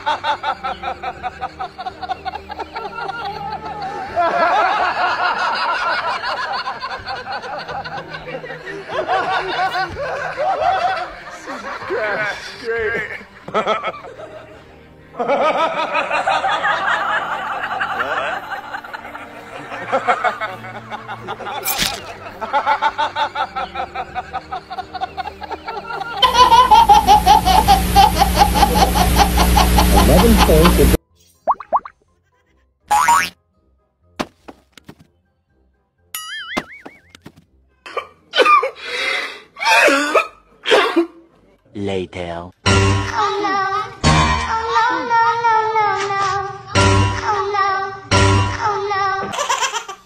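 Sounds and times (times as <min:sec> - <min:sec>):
people laughing: 0:00.0 - 0:31.0
baby laughing: 0:25.0 - 0:31.0, 0:49.3 - 0:50.0.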